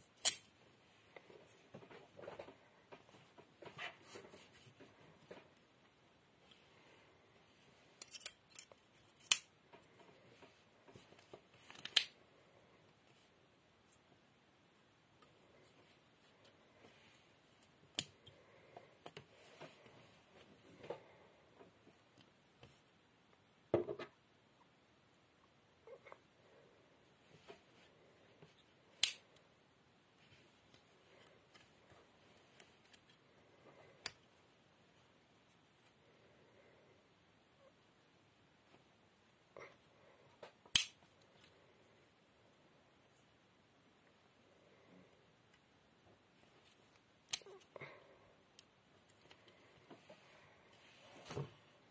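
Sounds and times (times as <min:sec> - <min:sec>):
faint clicks and scrapes of handling: 0:30.2 - 0:34.4, 0:45.5 - 0:51.6.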